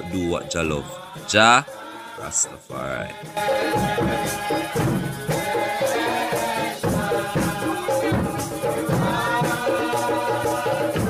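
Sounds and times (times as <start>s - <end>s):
music with steady beat: 3.1s - 11.0s.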